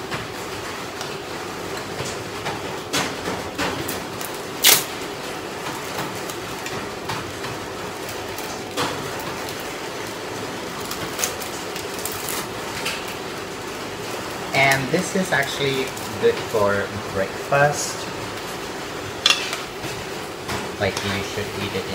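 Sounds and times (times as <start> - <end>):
plastic wrapper crinkling: 10.7 - 13.0.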